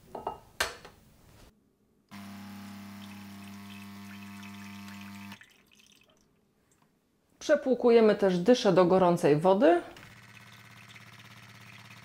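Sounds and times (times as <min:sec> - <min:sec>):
espresso machine pump humming: 0:02.1 - 0:05.4, 0:10.0 - 0:12.0
water pouring into glass: 0:02.8 - 0:06.3, 0:10.1 - 0:12.0.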